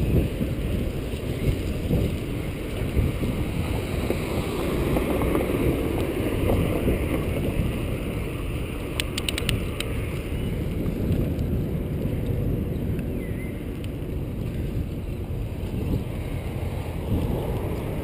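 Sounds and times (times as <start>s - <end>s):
bicycle rolling on pavement: 0.0s - 18.0s
wind buffeting microphone: 0.0s - 18.0s
sharp clicks: 8.9s - 10.0s.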